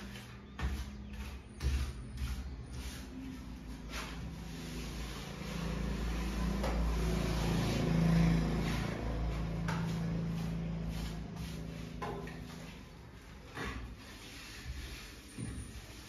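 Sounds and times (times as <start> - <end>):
engine-like hum: 3.0 - 13.3.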